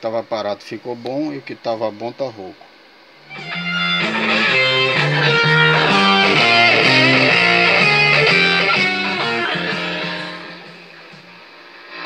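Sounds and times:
loud guitar music through speaker: 0:03.2 - 0:12.0.

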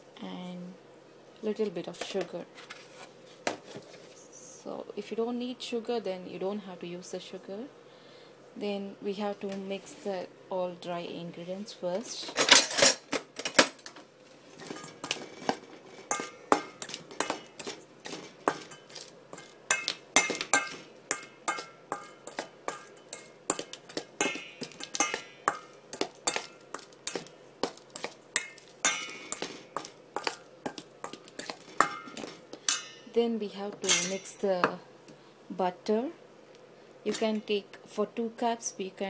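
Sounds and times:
metal spoon scraping steel bowl: 0:14.6 - 0:25.7, 0:27.9 - 0:33.0.

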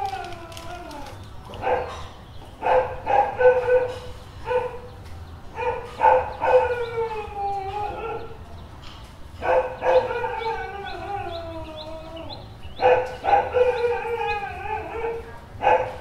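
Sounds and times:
dog howling: 0:00.0 - 0:01.9, 0:05.6 - 0:08.4, 0:09.4 - 0:15.9
dog barking: 0:01.6 - 0:04.9, 0:05.6 - 0:06.8, 0:09.4 - 0:10.2, 0:12.8 - 0:13.9, 0:15.1 - 0:16.0.

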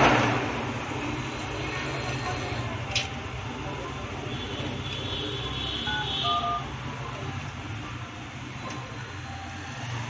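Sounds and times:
phone keypad beeps: 0:05.9 - 0:06.8.

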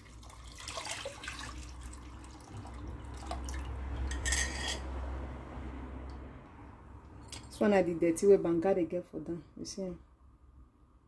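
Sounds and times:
liquid pouring and splashing into pot: 0:00.0 - 0:04.4.

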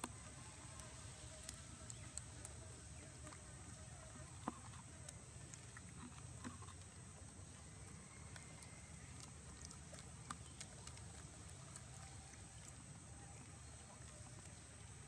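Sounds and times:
steady high-pitched hiss: 0:00.0 - 0:09.1.

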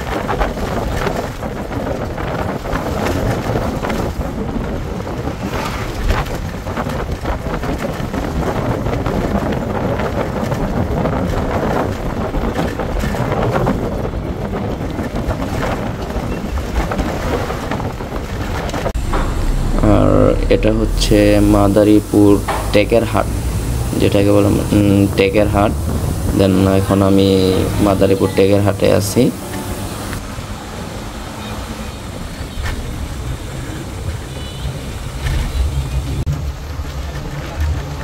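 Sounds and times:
bus engine and road rumble: 0:00.0 - 0:38.0.

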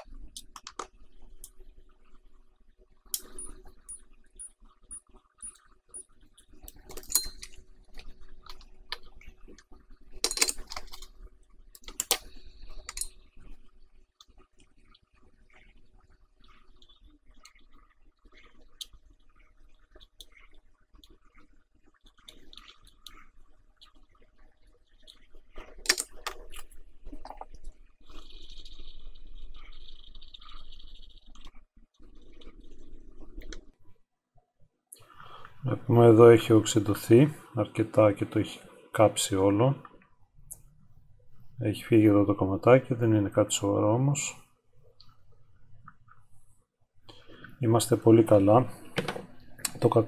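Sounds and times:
small clicks and taps: 0:00.0 - 0:01.6
flux crackling and popping: 0:00.0 - 0:34.1, 0:34.9 - 0:50.0.

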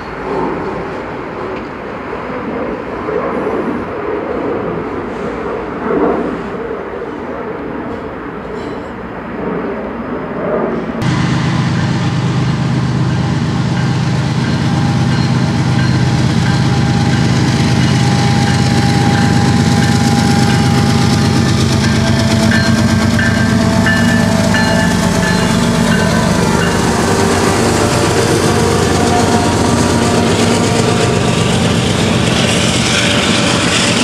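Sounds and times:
diesel locomotive engines droning: 0:00.0 - 0:09.4, 0:10.8 - 0:34.0
train wheels rolling: 0:11.1 - 0:34.0.

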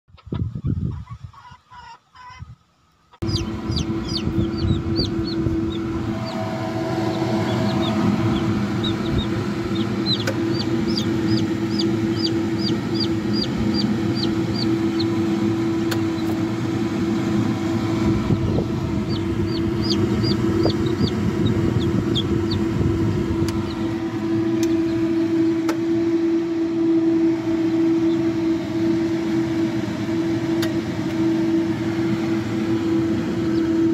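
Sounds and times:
chicks peeping: 0:00.1 - 0:02.5, 0:03.2 - 0:17.4, 0:18.0 - 0:25.8, 0:33.4 - 0:33.8
steady low hum: 0:03.2 - 0:33.9.

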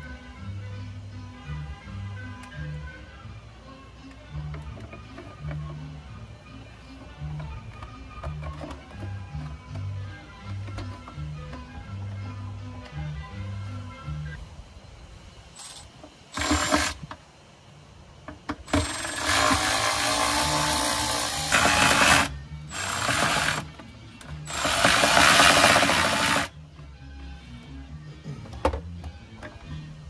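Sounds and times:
cordless electric screwdriver running: 0:16.4 - 0:17.0, 0:18.7 - 0:23.7, 0:24.5 - 0:26.5.

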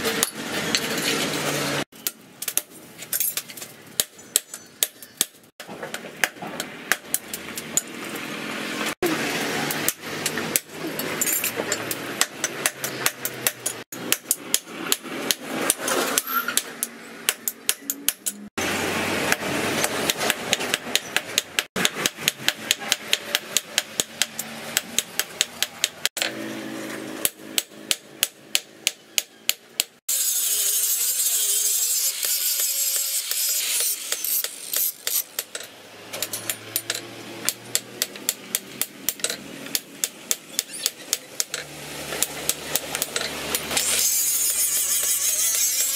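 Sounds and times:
file strokes on metal: 0:43.7 - 0:45.9.

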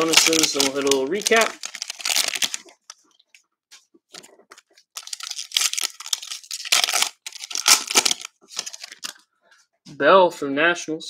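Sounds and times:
cellophane pack tearing: 0:00.0 - 0:03.0, 0:04.9 - 0:09.2
cellophane crinkling and rustling: 0:00.0 - 0:03.4, 0:04.1 - 0:09.2.

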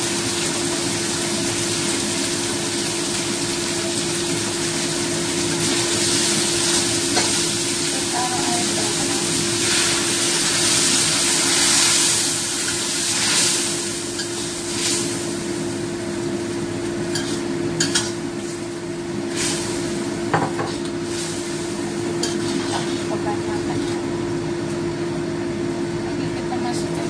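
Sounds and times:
paste sizzling in a wok: 0:00.0 - 0:24.2
metal spatula scraping a wok: 0:22.2 - 0:23.1.

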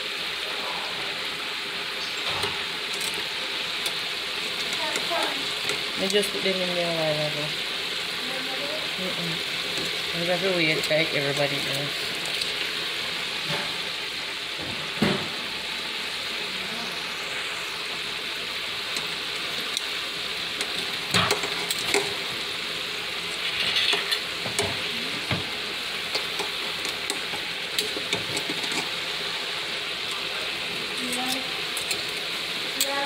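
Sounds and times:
chicken sizzling in hot oil: 0:00.0 - 0:33.0
metal tongs knocking fryer baskets: 0:20.7 - 0:22.1.

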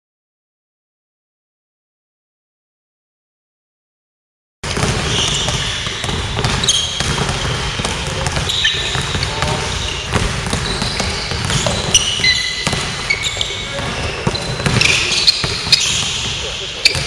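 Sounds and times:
basketballs dribbled on wooden floor: 0:04.7 - 0:17.0
sneakers squeaking on court: 0:04.7 - 0:17.0.

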